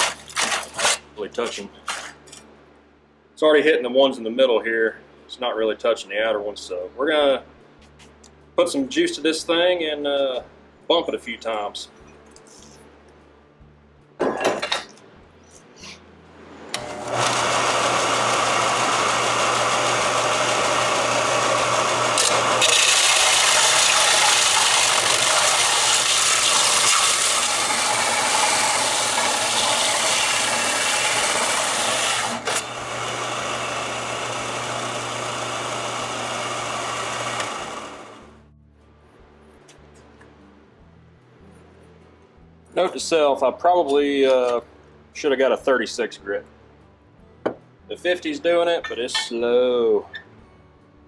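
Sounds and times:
belt sander grinding metal: 16.8 - 38.3.

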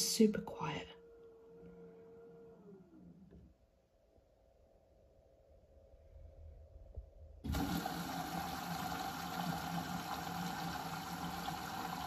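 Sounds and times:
washing machine running with hum: 0.0 - 12.0.

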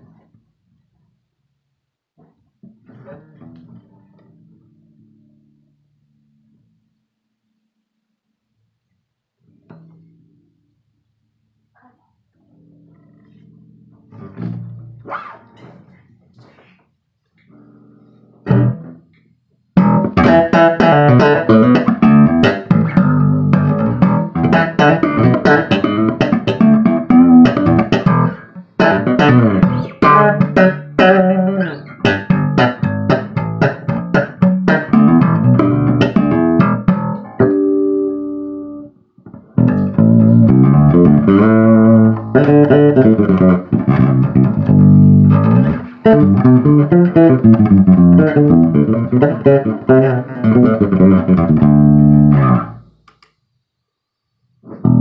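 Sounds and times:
electric bass guitar plucked: 2.2 - 6.5, 12.4 - 16.6, 17.5 - 19.1, 19.8 - 53.0, 54.6 - 55.0.

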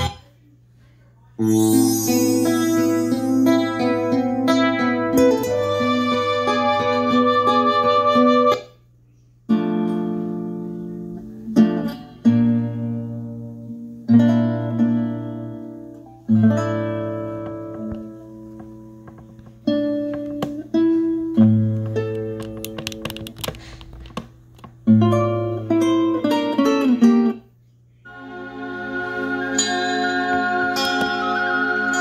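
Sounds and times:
strummed guitar chords: 1.4 - 7.4
acoustic guitar music over loudspeakers: 2.4 - 8.7, 9.5 - 24.1, 24.7 - 27.5.

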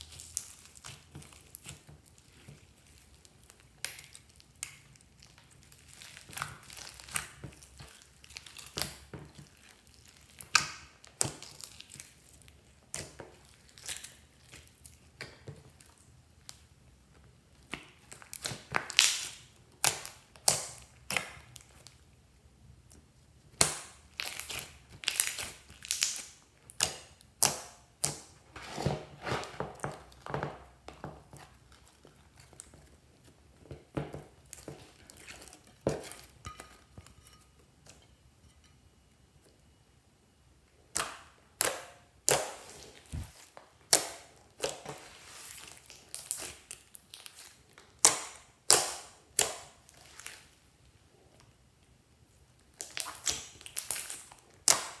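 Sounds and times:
sticky slime pops and crackles: 0.0 - 12.2, 17.6 - 21.8, 23.5 - 28.4, 40.9 - 43.3, 43.9 - 45.0, 45.8 - 50.4, 52.7 - 55.0.

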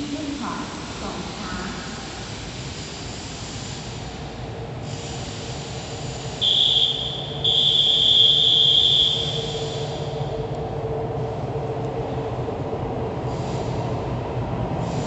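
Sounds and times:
high-pitched train warning signal: 6.4 - 10.5.

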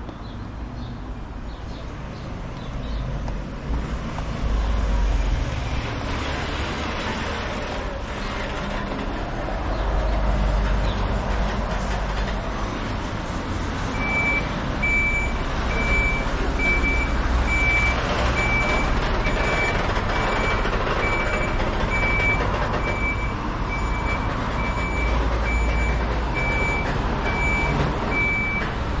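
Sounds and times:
road traffic: 0.0 - 29.0
truck engine running: 3.4 - 29.0
truck reversing alarm beeping: 13.9 - 28.8.

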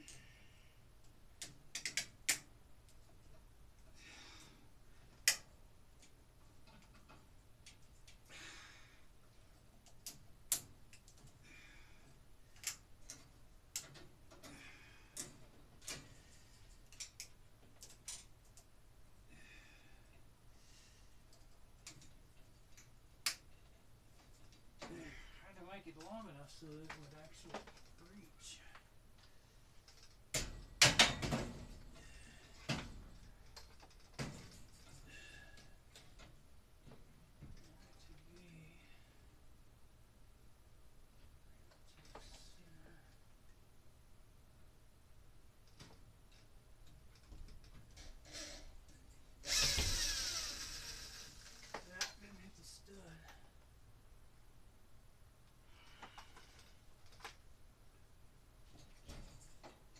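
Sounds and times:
wiring clicks: 1.0 - 3.4, 12.5 - 14.5.

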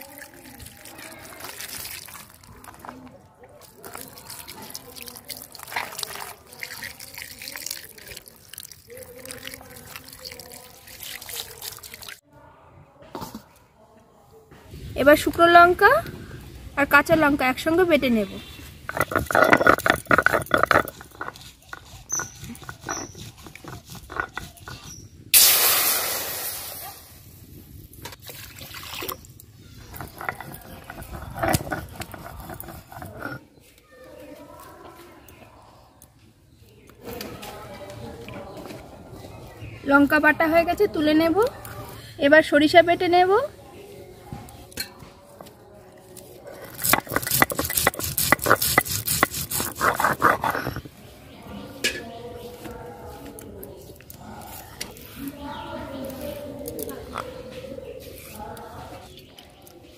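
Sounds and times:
stone pestle grinding on stone: 18.6 - 25.2, 29.8 - 33.5, 46.5 - 51.0
water hissing in hot wok: 25.4 - 27.1.

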